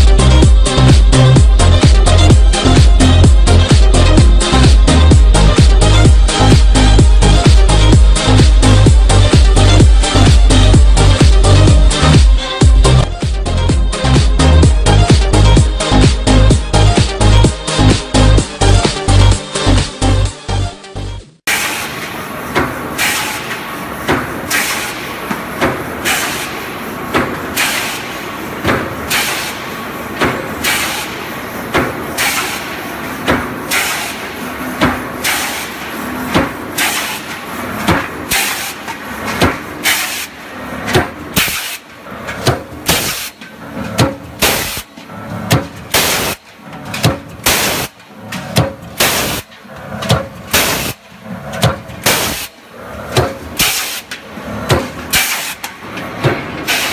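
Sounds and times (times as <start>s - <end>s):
steady machine noise: 0.0s - 20.6s, 21.4s - 56.9s
power press knocking: 21.5s - 56.9s.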